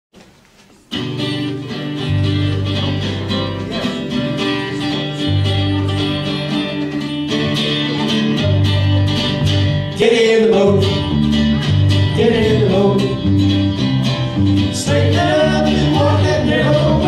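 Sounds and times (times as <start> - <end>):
strummed guitars: 0.2 - 17.0
electric bass notes: 1.0 - 17.0.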